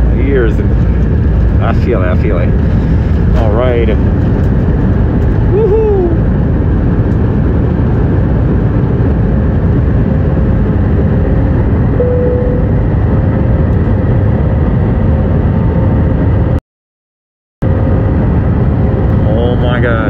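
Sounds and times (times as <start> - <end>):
jet engines roaring in cabin: 0.0 - 16.6, 17.6 - 20.0
faint steady tone: 12.0 - 12.8.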